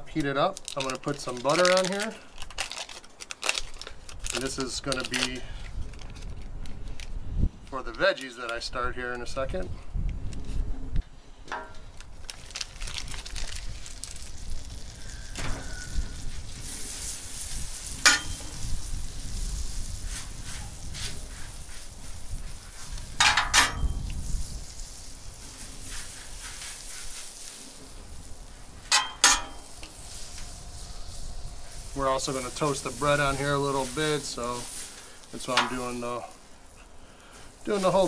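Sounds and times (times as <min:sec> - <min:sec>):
butter sizzling on griddle: 0:13.4 - 0:38.0.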